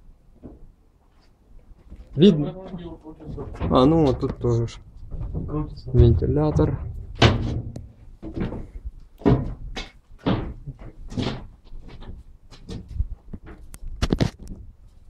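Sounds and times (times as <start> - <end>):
footsteps on metal floor: 1.7 - 13.7
knocks and thuds: 3.2 - 13.6.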